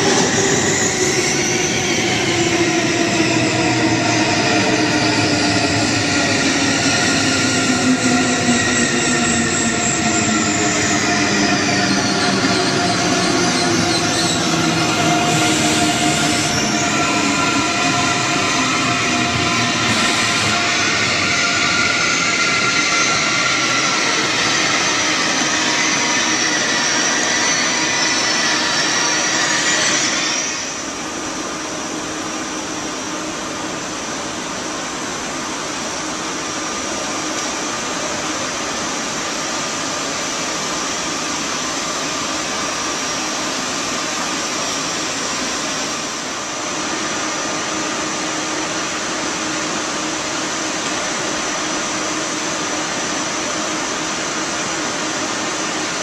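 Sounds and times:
electric train humming and whining: 0.0 - 56.0.

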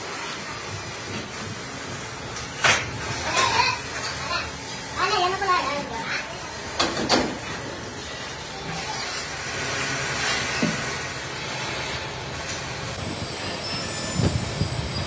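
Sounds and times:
workshop machinery hiss and hum: 0.0 - 15.0
thin high whine: 12.6 - 15.0.

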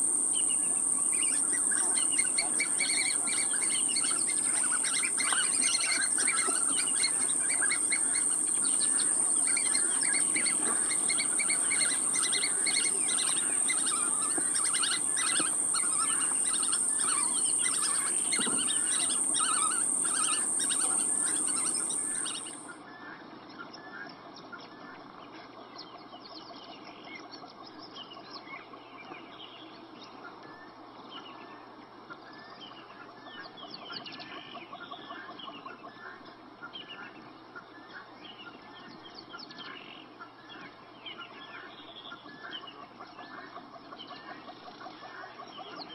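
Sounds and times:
birds chirping: 0.0 - 22.7
high-pitched whine: 0.0 - 22.7.

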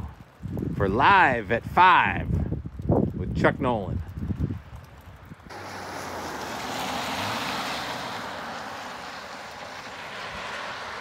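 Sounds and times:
car tyres hissing on wet road: 5.5 - 11.0.

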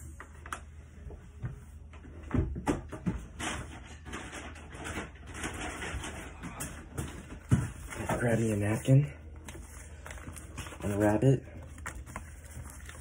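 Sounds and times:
paper bag rustling: 3.7 - 13.0.

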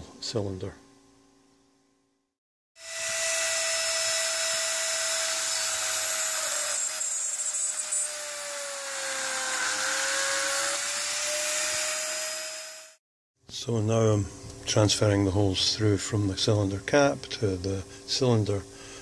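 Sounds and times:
rotary tool drilling metal: 2.8 - 13.0.

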